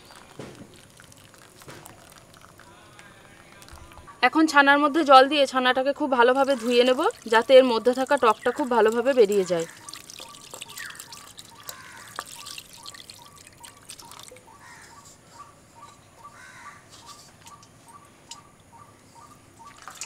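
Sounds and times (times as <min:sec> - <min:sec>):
water trickling and dripping: 0:00.0 - 0:04.1, 0:06.2 - 0:14.6, 0:19.6 - 0:20.0.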